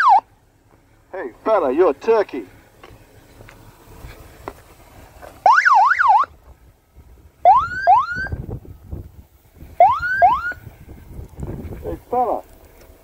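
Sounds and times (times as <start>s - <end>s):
electronic siren warble and whoops: 0.0s - 0.2s, 5.5s - 6.3s, 7.4s - 8.4s, 9.8s - 10.6s.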